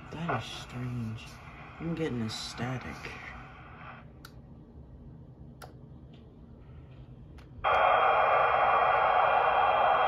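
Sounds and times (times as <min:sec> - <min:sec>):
radio scanner static: 0:00.0 - 0:04.1, 0:07.6 - 0:10.0.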